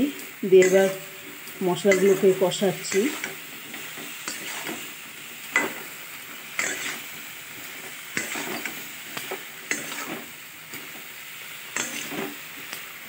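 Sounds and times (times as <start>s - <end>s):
frying sizzle: 0.0s - 13.0s
spatula scraping a steel pan: 1.9s - 4.9s, 6.6s - 7.2s, 8.2s - 8.8s, 9.7s - 10.3s, 11.8s - 12.4s.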